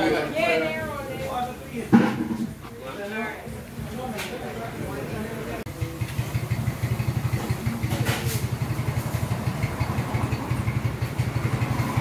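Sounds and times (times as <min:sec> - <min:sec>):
engine idling: 0:05.7 - 0:12.0.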